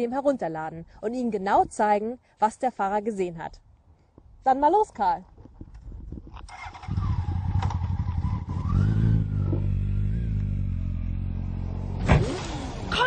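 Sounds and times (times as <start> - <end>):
motorcycle engine pulling away: 6.4 - 12.9.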